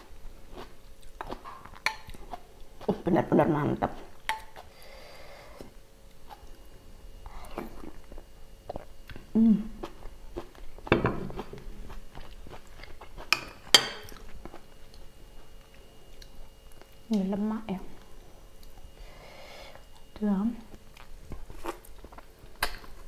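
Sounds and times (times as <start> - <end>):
person humming: 9.3 - 9.8
chewing: 14.0 - 17.2.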